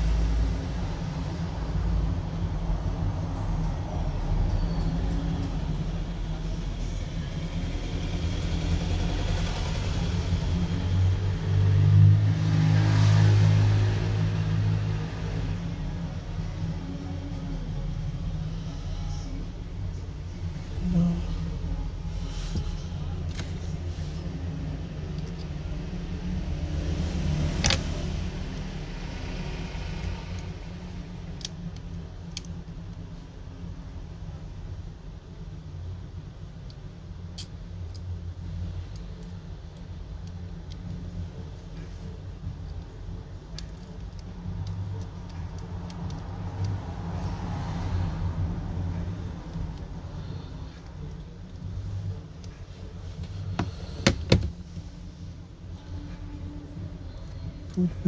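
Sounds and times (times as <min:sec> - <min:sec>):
low background rumble: 0:14.1 - 0:58.0
steady low hum: 0:14.2 - 0:58.0.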